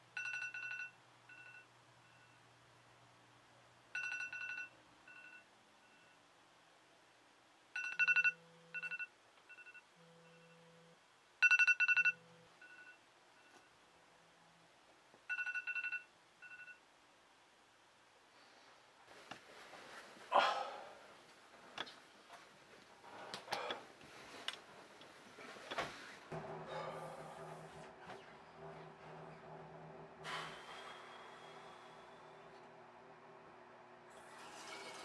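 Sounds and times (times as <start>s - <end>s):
smartphone alarm beeping: 7.8s - 10.6s, 11.4s - 13.6s.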